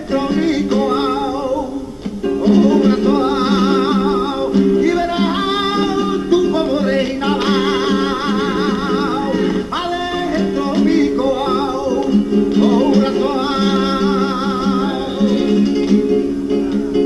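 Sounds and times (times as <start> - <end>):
acoustic guitar: 0.0 - 17.0
person singing with vibrato: 0.0 - 17.0.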